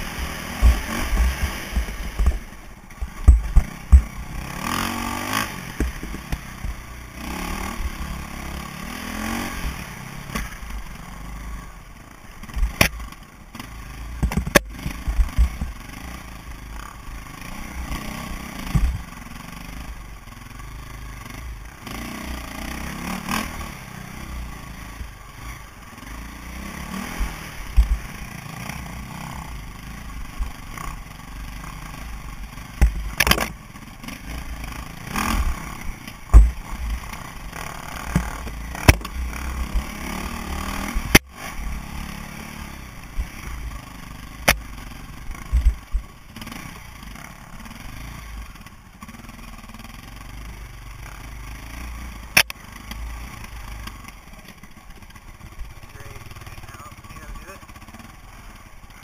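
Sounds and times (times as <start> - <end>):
motorcycle engine revving: 0.0 - 59.0
knocks and clatter from bumps: 14.2 - 15.7.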